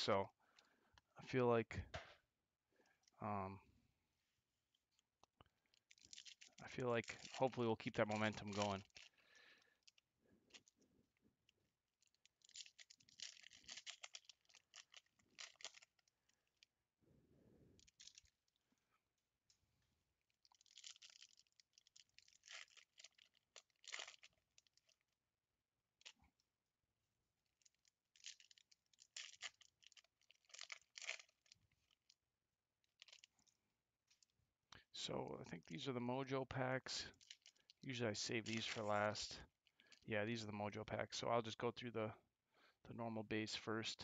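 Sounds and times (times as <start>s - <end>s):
foil wrapper crinkling: 5.9s - 7.5s, 12.3s - 16.1s, 20.5s - 25.1s, 27.6s - 32.2s, 32.9s - 33.5s, 38.4s - 39.0s.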